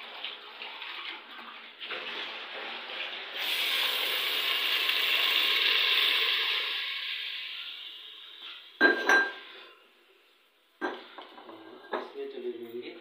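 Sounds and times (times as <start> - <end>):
tap water running: 0.0 - 9.7
onions sizzling in hot oil: 3.4 - 8.7.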